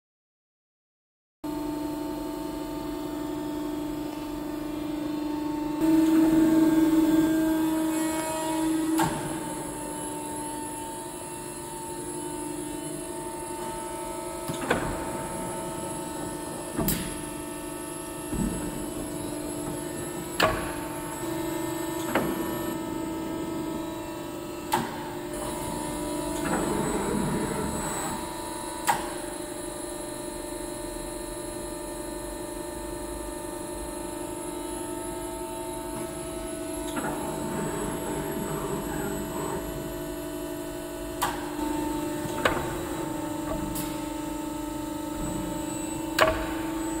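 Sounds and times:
machine humming: 1.5s - 47.0s.

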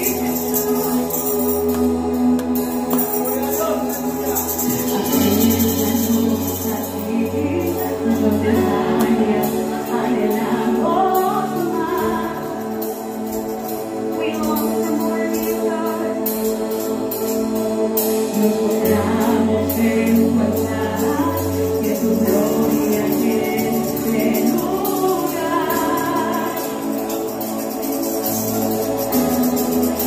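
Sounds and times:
tambourine beat: 0.0s - 9.4s, 16.3s - 30.0s
group of voices singing: 0.0s - 30.0s.

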